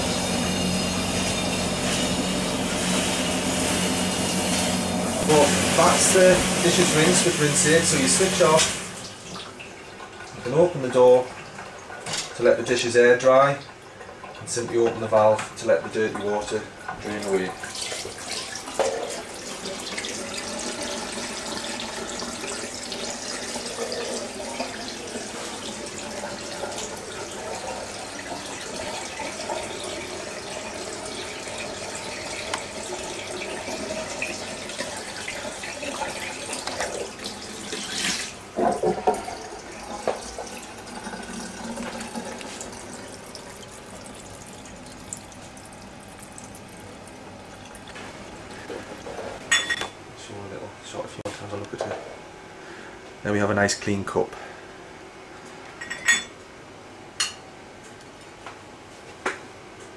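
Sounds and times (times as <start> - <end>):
water splashing into a sink: 15.8 - 49.4.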